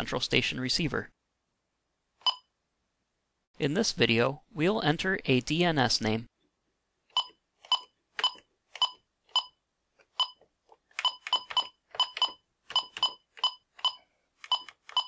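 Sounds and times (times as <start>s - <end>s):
keypad beeps: 2.2s - 2.5s, 7.1s - 9.6s, 10.2s - 10.4s, 11.0s - 15.0s.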